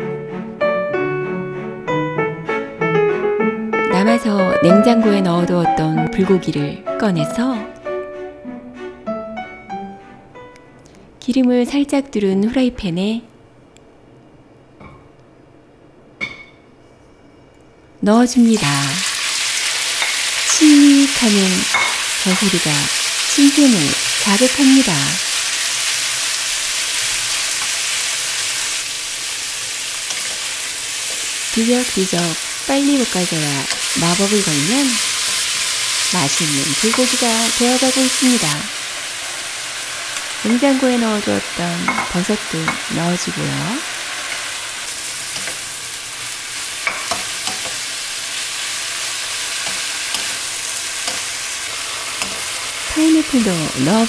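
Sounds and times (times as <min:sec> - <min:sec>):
spatulas knocking on pan: 0:16.2 - 0:16.6, 0:21.7 - 0:22.5, 0:41.8 - 0:42.8, 0:46.8 - 0:47.8
beef sizzling in a wok: 0:18.4 - 0:54.0
wooden spatula stir-frying: 0:18.5 - 0:54.0.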